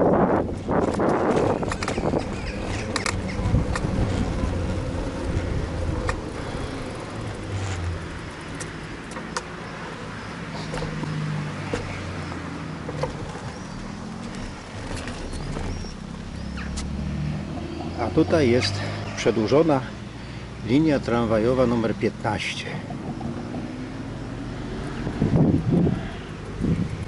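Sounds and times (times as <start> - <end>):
tyre noise: 0.0 - 19.4
passing cars engine hum: 0.0 - 27.0.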